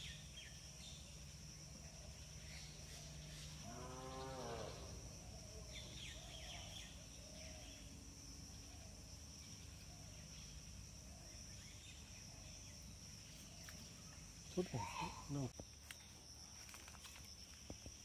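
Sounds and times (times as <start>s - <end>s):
insect drone: 0.0s - 18.0s
bird chirps: 5.6s - 8.0s.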